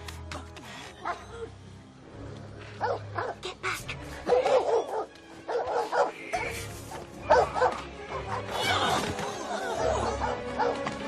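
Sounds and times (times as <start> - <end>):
background music: 0.0 - 11.0
dogs barking and yapping: 2.8 - 3.4, 4.2 - 6.3, 6.9 - 8.6, 9.5 - 11.0.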